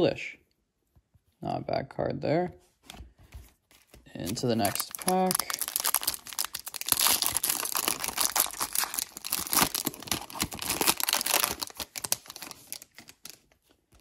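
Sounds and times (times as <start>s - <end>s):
foil wrapper tearing and crinkling: 4.1s - 13.8s.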